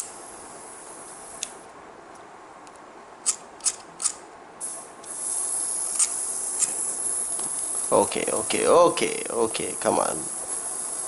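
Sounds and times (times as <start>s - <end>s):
butane gas hissing: 4.6s - 11.0s.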